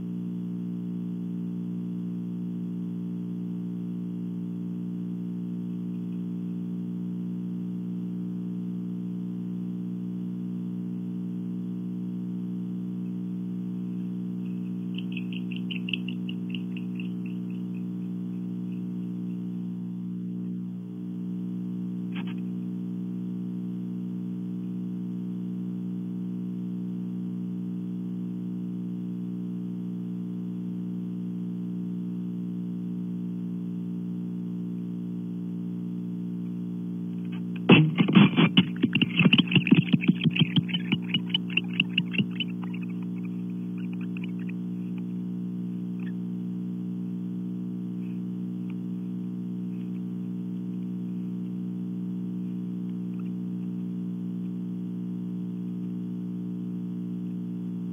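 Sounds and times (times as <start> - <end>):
steady electrical hum: 0.0 - 30.4, 32.0 - 57.9
rapid high clicks: 14.5 - 17.9, 37.6 - 44.6.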